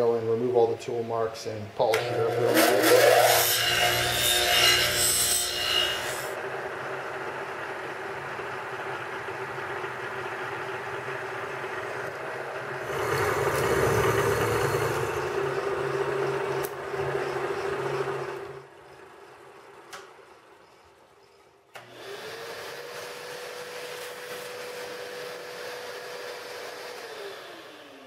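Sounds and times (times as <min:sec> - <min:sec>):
milling machine cutting steel: 0:01.9 - 0:06.4, 0:12.8 - 0:18.6
bench grinder grinding steel: 0:02.0 - 0:06.4, 0:12.8 - 0:18.6.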